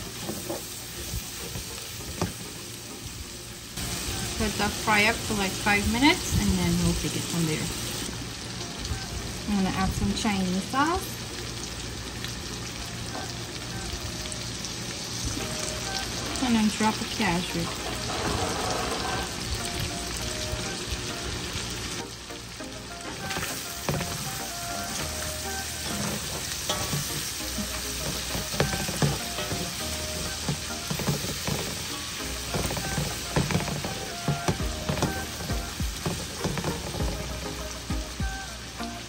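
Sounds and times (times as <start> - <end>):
food sizzling in a frying pan: 0.0 - 39.0
utensil knocking and scraping pan: 23.3 - 24.4, 25.8 - 37.4.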